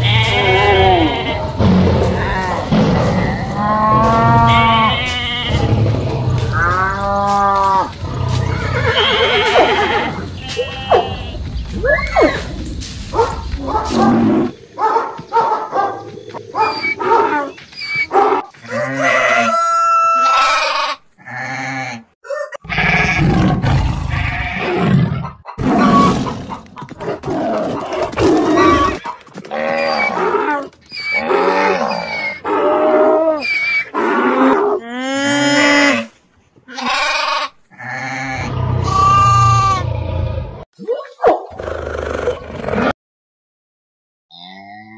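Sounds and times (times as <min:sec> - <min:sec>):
animal calls: 0:00.0 - 0:21.0, 0:24.1 - 0:34.0.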